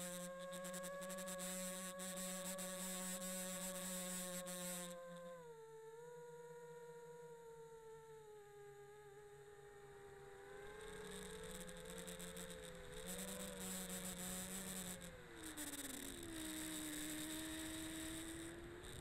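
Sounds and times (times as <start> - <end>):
quadcopter motors whining: 0.0 - 5.8, 9.8 - 19.0.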